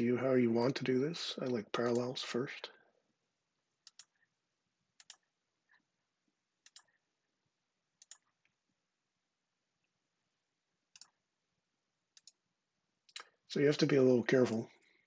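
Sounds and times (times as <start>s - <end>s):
computer mouse clicks: 3.8s - 4.3s, 5.0s - 5.8s, 6.6s - 7.0s, 8.0s - 8.6s, 10.9s - 11.2s, 12.1s - 12.4s, 13.1s - 13.4s.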